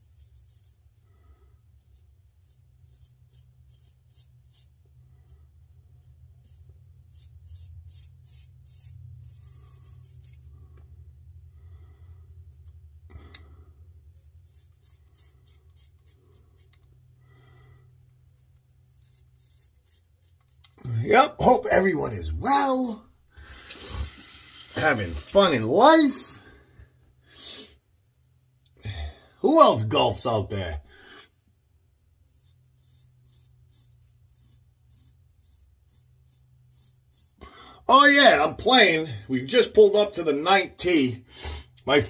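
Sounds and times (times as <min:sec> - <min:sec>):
straight razor scraping stubble: 0:00.0 - 0:00.8, 0:01.7 - 0:10.7, 0:12.5 - 0:17.0, 0:17.9 - 0:20.9, 0:32.2 - 0:37.4
low steady hum: 0:00.1 - 0:27.2.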